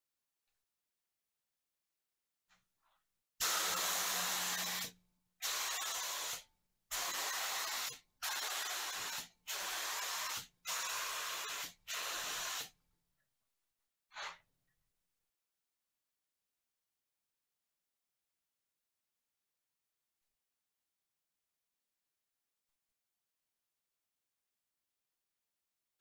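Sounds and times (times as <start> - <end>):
spray gun hissing bursts: 3.4 - 12.8.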